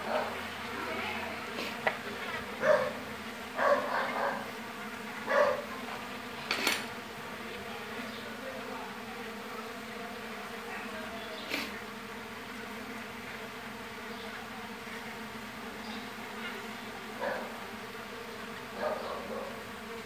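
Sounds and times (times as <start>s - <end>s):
bees buzzing: 0.0s - 20.0s
rustles and clicks of comb: 6.5s - 6.9s.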